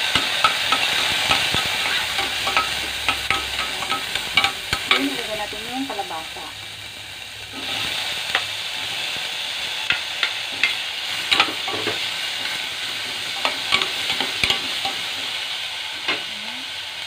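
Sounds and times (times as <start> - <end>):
vegetables sizzling in a pot: 0.0 - 17.0
spatula scraping a metal pot: 0.2 - 5.1.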